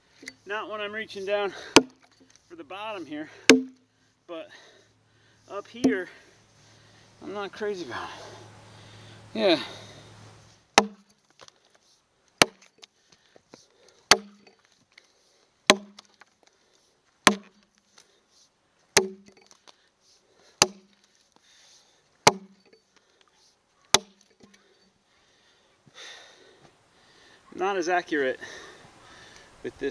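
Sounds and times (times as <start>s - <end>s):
axe chopping into a log: 1.6s - 2.0s, 3.5s - 3.8s, 10.8s - 11.2s, 12.4s - 12.8s, 14.1s - 14.6s, 15.7s - 16.1s, 17.2s - 17.6s, 19.0s - 19.4s, 20.6s - 21.0s, 22.2s - 22.7s, 23.9s - 24.3s.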